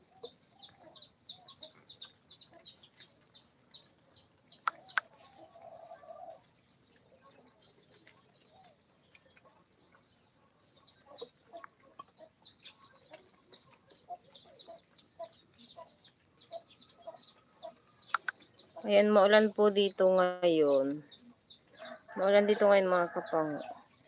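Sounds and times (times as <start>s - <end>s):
sharp clicks: 4.6s - 5.1s, 18.1s - 18.4s.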